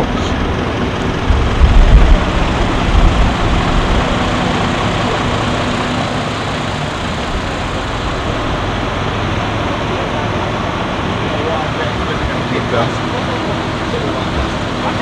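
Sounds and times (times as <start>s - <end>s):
low bumps: 0.0s - 9.3s
low traffic rumble: 0.0s - 15.0s.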